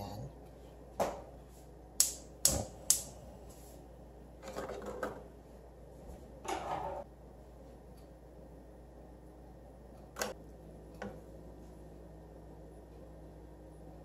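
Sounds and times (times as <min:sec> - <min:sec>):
gas stove igniter clicking: 0:02.0 - 0:03.2.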